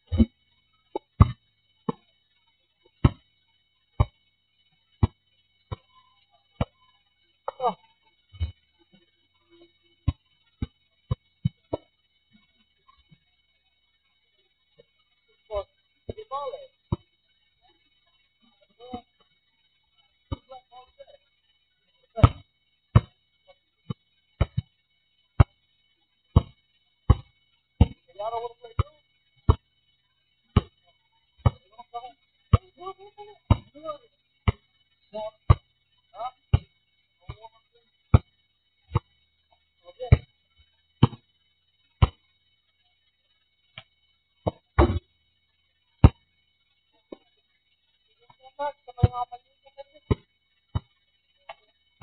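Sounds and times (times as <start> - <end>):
basketball bouncing on asphalt: 0.9 - 2.0, 2.9 - 3.2, 4.0 - 4.2, 5.0 - 5.9, 22.2 - 23.2, 23.9 - 24.7, 26.3 - 28.0, 30.5 - 30.8, 31.4 - 31.6, 33.5 - 33.8, 34.4 - 34.6, 35.5 - 35.7, 36.5 - 36.7, 38.1 - 38.3, 40.1 - 40.3, 41.0 - 41.3, 42.0 - 42.2, 43.7 - 45.1, 46.0 - 46.2, 50.1 - 50.9.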